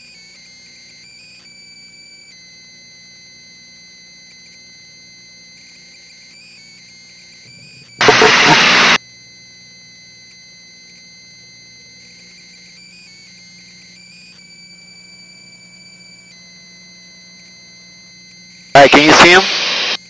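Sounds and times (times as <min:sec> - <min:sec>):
faint steady tones: 0:00.1 - 0:20.0
radio intercom hum: 0:07.6 - 0:09.0, 0:18.8 - 0:20.0
radio static burst: 0:08.0 - 0:09.0, 0:18.8 - 0:20.0.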